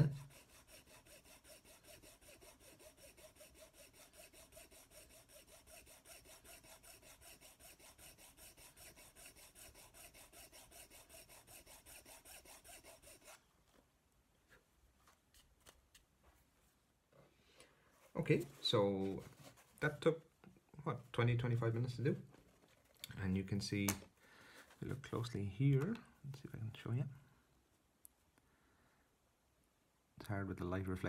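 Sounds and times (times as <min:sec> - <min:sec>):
needle file rasping on metal: 0:00.0 - 0:13.4.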